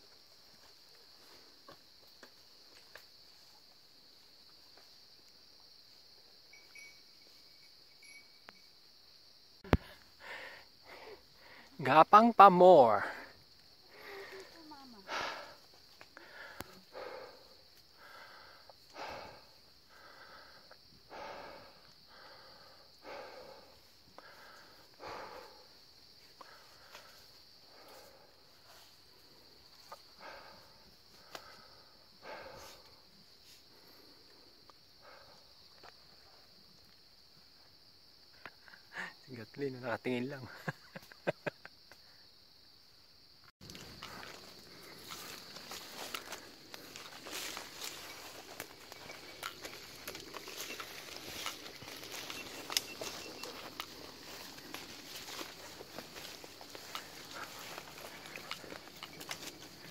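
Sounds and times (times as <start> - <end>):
insects droning: 0.0 - 59.9
person breathing heavily: 9.7 - 11.8, 13.0 - 35.7, 43.6 - 59.9.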